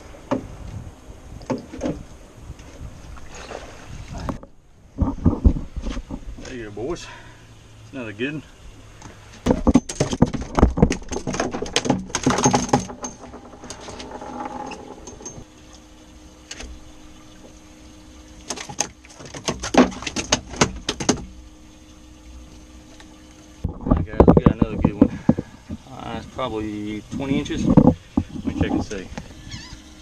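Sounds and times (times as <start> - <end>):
fish clattering on boat deck: 9.4 - 15.5, 18.4 - 21.4, 23.6 - 26.0.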